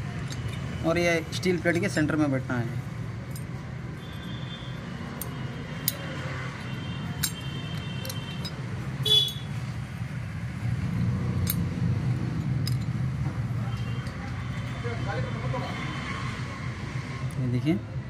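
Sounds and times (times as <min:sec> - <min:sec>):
metallic clicks of clutch plates: 0:12.4 - 0:13.0.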